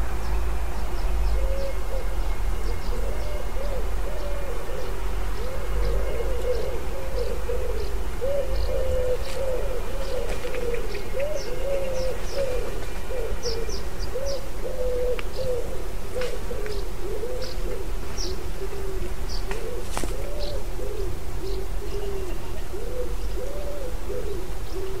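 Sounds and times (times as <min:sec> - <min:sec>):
small birds chirping: 0:16.2 - 0:18.5.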